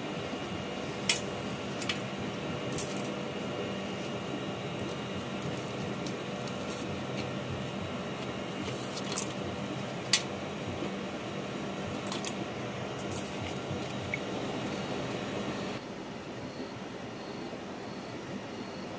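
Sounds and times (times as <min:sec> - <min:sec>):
steady hum: 0:00.0 - 0:18.9.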